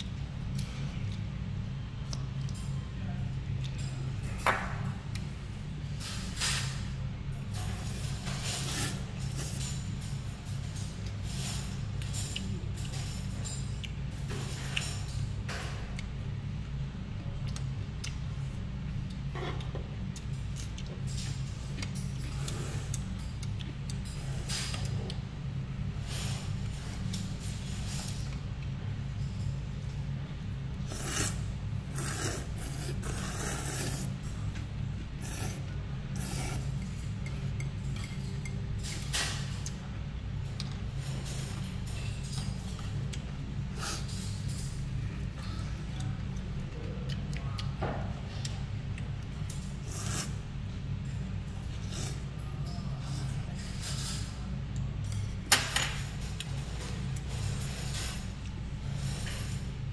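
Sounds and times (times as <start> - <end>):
low background hum: 0.0 - 59.9
person slurping noodle soup: 30.8 - 34.2, 35.2 - 36.8
utensils clinking against bowls: 35.2 - 39.8.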